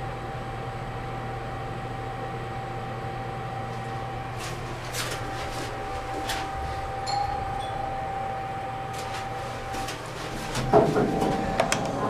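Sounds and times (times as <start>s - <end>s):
elevator drive whine: 0.0s - 12.0s
two-tone elevator chime: 6.6s - 9.0s.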